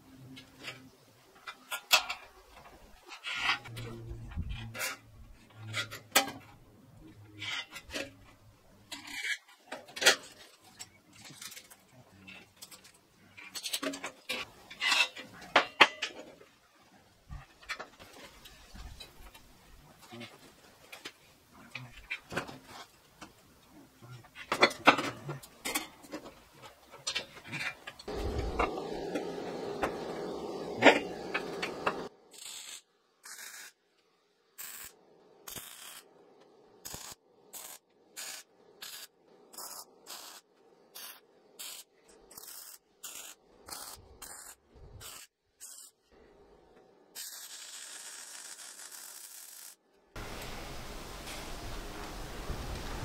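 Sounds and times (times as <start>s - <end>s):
welder hissing: 28.1s - 33.7s, 41.0s - 45.9s
chopped bursts of work sound: 28.1s - 33.8s.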